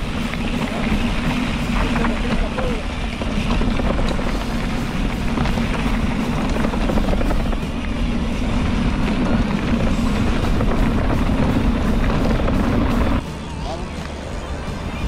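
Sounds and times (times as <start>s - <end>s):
tyre and trail noise: 0.0s - 15.0s
wind buffeting microphone: 0.0s - 15.0s
music: 4.3s - 15.0s.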